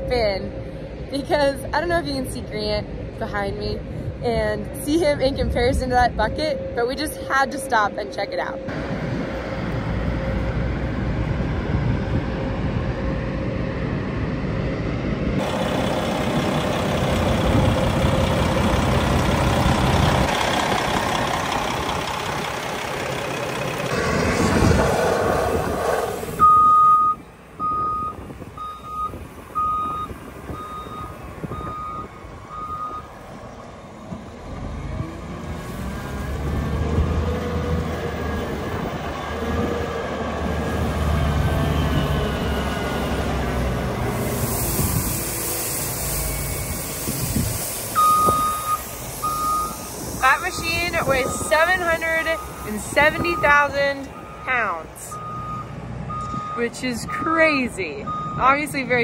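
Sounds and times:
wheel loader engine running: 8.7s - 59.0s
reversing alarm beeps: 26.4s - 33.1s, 48.0s - 49.9s, 50.9s - 57.3s, 58.0s - 58.5s.

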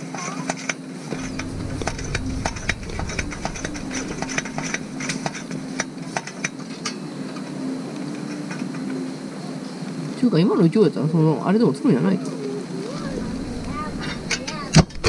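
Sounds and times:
faint low hum: 1.1s - 6.9s, 12.8s - 15.0s.

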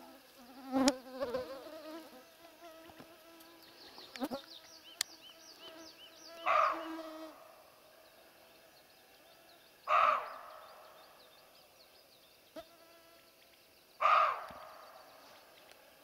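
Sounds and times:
mosquitoes whining: 0.0s - 7.6s
small birds chirping: 0.6s - 16.0s
deer alarm bark: 6.4s - 7.0s, 9.9s - 10.5s, 14.0s - 14.8s.

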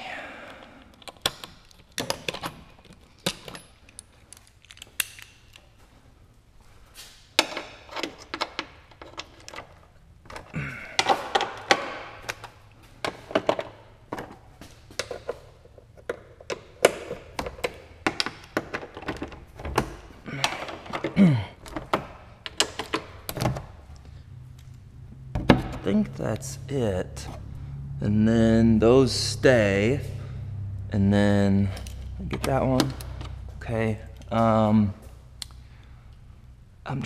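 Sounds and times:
hand tools clicking and knocking: 0.5s - 5.6s, 7.4s - 23.7s, 31.6s - 33.4s
steel sockets clinking: 0.6s - 5.7s.

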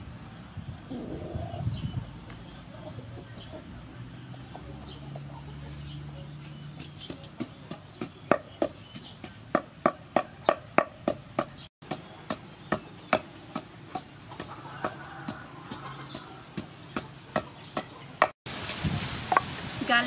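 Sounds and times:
pestle pounding in wooden mortar: 6.4s - 17.9s.

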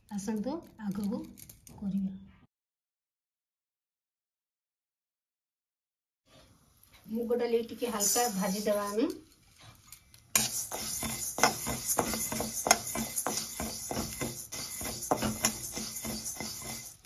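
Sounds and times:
metal spatula scraping pan: 7.8s - 9.0s, 10.4s - 17.0s
lentils rattling against pan: 7.9s - 17.0s.

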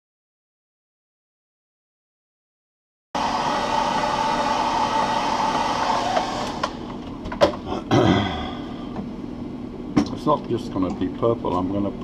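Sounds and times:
hot-air dryer blowing: 3.2s - 7.1s.

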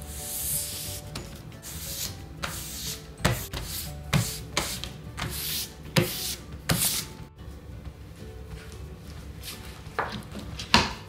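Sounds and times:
hands swishing on paper: 0.1s - 7.2s.

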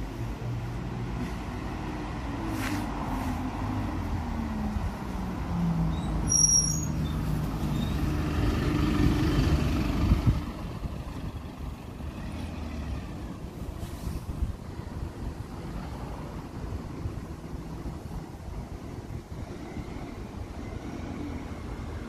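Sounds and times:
diesel bus driving past: 0.0s - 22.0s
brief high squeal: 6.0s - 8.0s.

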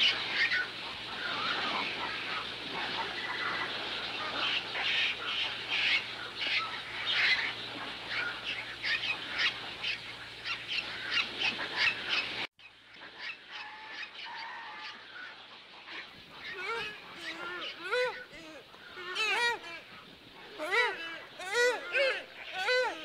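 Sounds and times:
flamingos honking: 0.0s - 12.5s, 13.1s - 23.0s.

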